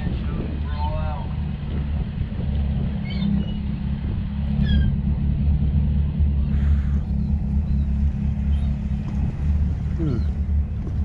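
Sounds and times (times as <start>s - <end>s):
boat engine idling: 0.0s - 11.0s
gulls calling: 2.9s - 5.0s, 6.4s - 10.5s.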